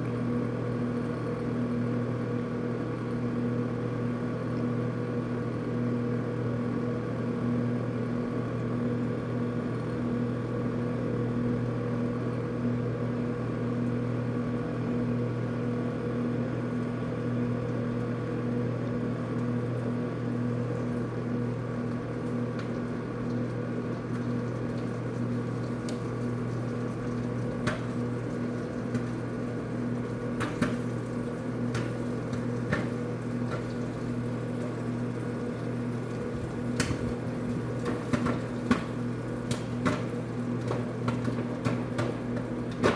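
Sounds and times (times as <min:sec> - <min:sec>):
microwave oven humming: 0:00.0 - 0:42.9
popcorn popping: 0:20.4 - 0:42.9.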